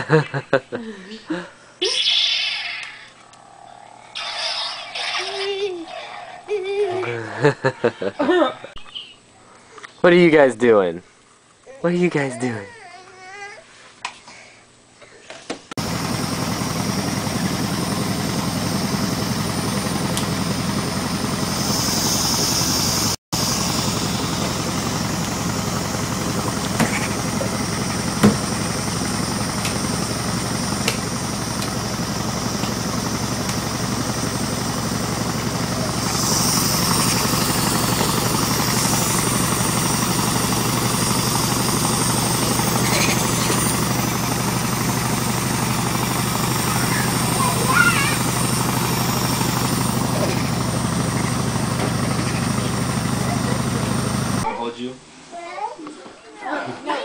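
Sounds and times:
small motor running: 15.8s - 54.5s.

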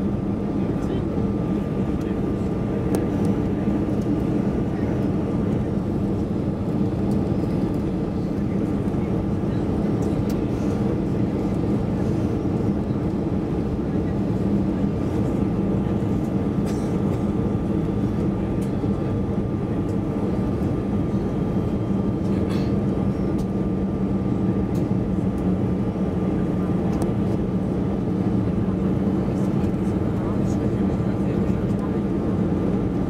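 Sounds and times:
jet engine hum and whine: 0.0s - 33.0s.

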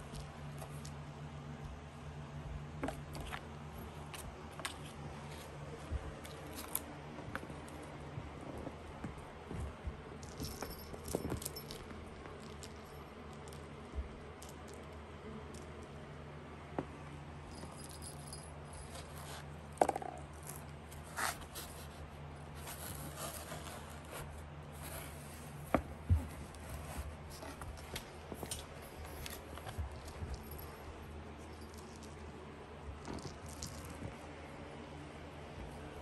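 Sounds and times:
cat toys rattling and jingling: 10.1s - 14.9s, 17.5s - 21.9s, 26.8s - 32.4s, 33.0s - 34.2s
light clicks and scrapes: 20.5s - 32.3s.

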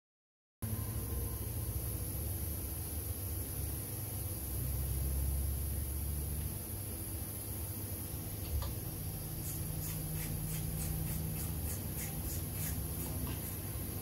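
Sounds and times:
steady low hum: 0.6s - 14.0s.

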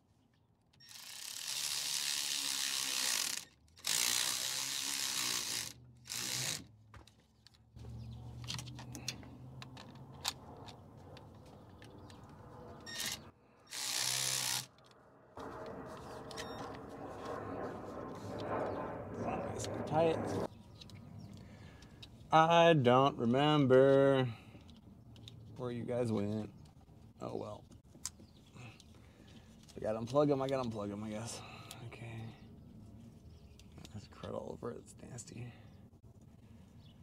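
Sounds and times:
power tool humming: 0.9s - 6.6s, 13.7s - 14.7s.

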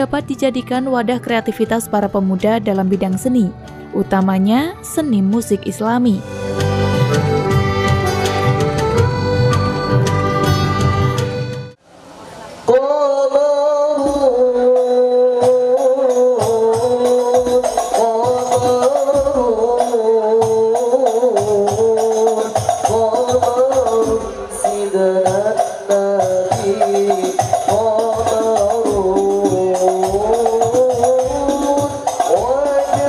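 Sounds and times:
men singing together: 12.8s - 33.0s
frame drums beating: 16.4s - 33.0s.

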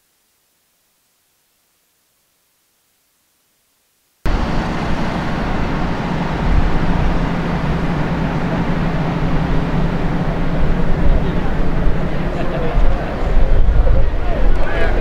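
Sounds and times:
rushing outdoor noise: 4.2s - 15.0s
engines droning: 4.3s - 15.0s.

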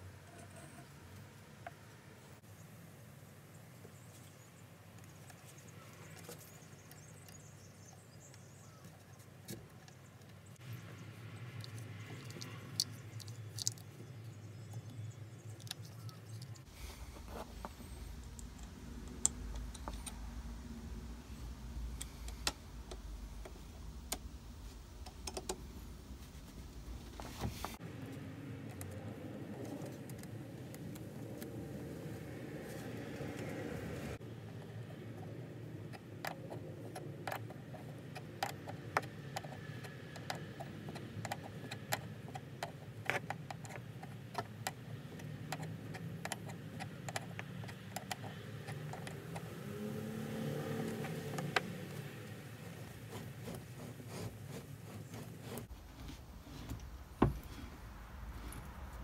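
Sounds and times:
small metal parts clicking: 11.6s - 14.9s.

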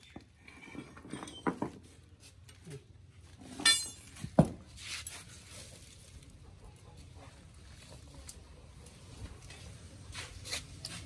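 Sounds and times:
steel parts clinking on concrete: 0.0s - 1.8s, 3.4s - 4.3s.

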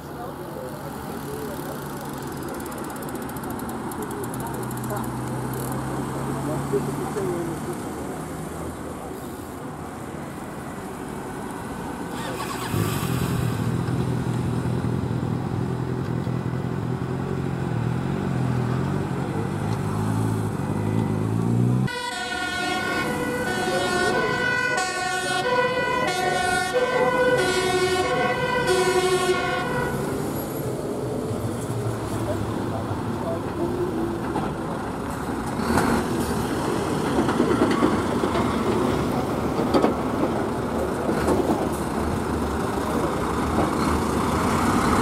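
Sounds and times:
fire engine accelerating: 11.9s - 45.0s
two-tone siren: 20.7s - 30.0s.

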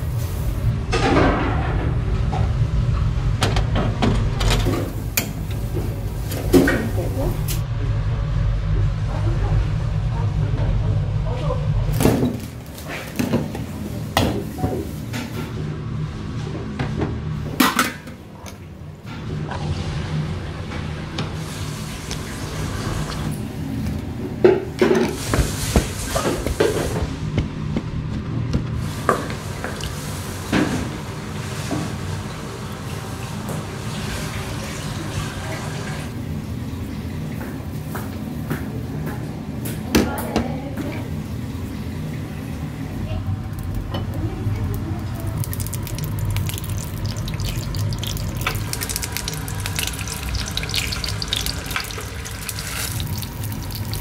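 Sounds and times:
steady low hum: 0.0s - 31.5s.

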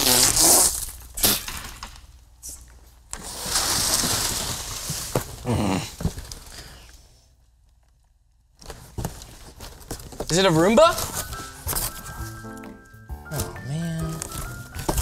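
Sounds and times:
cardboard box and paper rustling: 8.6s - 12.3s.

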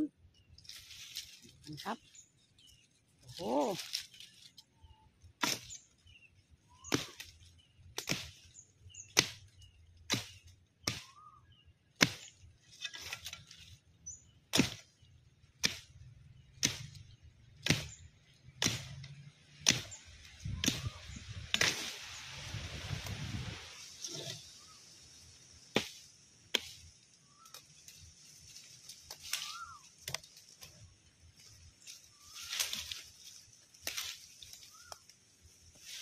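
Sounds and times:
leaves and branches rustling: 0.0s - 11.3s, 11.9s - 36.0s
machete chopping wood: 5.4s - 5.8s, 6.8s - 8.5s, 9.1s - 11.2s, 12.0s - 13.3s, 14.5s - 15.0s, 15.6s - 16.0s, 16.6s - 21.9s, 25.7s - 26.9s.

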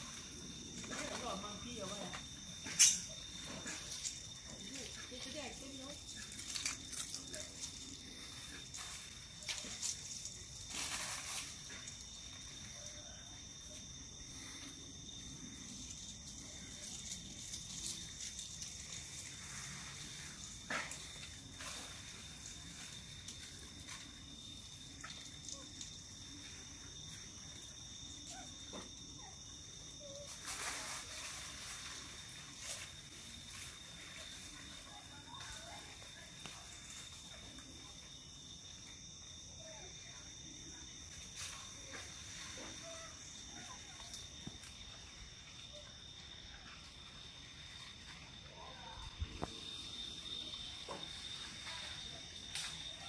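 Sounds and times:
rustling: 0.0s - 24.3s, 30.0s - 37.7s
high-pitched insect drone: 0.0s - 34.4s.

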